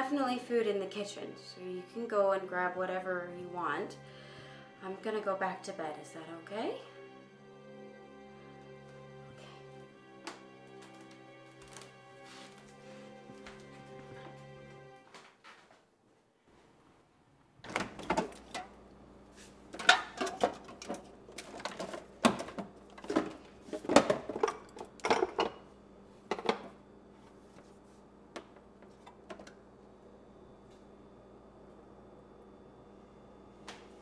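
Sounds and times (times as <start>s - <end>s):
jars and containers clinking: 19.8s - 25.6s.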